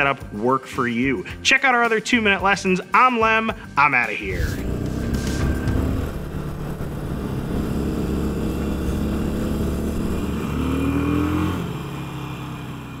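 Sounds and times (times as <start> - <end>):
motorcycle engine running: 4.2 - 13.0.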